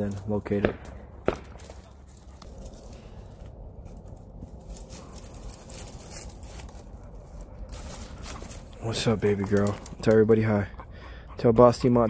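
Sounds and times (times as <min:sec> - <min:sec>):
low steady rumble: 0:00.0 - 0:12.0.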